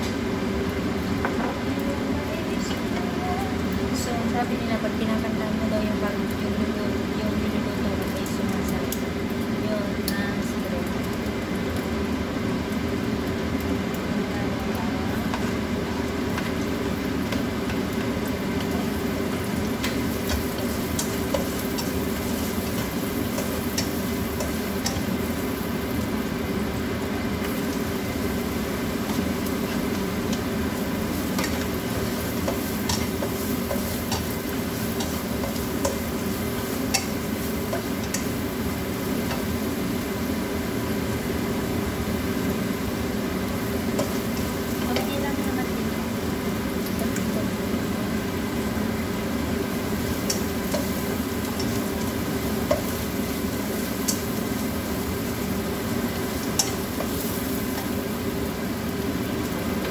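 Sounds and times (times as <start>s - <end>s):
food sizzling in oil: 0.0s - 59.9s
spatula tapping pan and plate: 36.8s - 38.3s.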